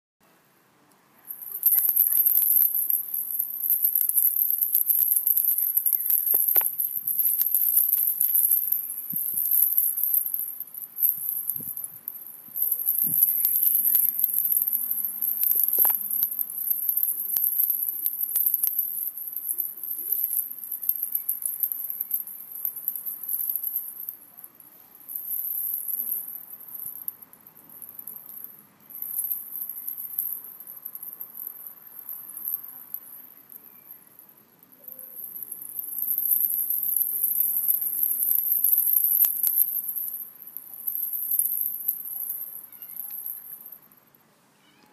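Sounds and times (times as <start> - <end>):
cricket chirring: 1.3 - 24.0, 34.8 - 44.0.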